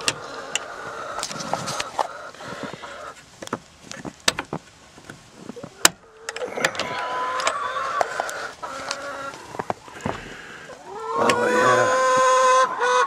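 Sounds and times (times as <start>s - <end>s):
hens calling and clucking: 0.0s - 13.0s.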